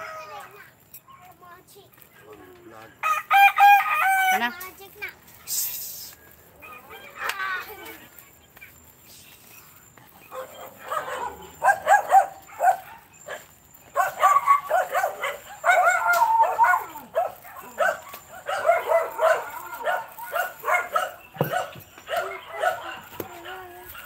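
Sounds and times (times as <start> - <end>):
small dog yapping: 10.3 - 24.0.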